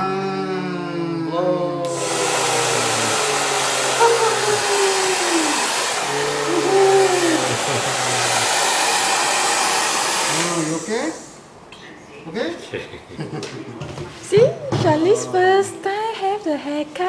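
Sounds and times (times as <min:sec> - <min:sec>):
hair dryer running: 0:01.8 - 0:11.5.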